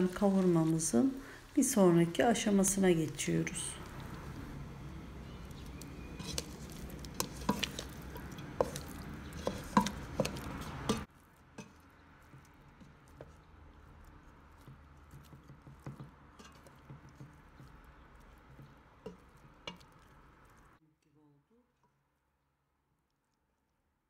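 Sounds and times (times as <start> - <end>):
wooden spoon stirring meat in pot: 0.0 - 20.8.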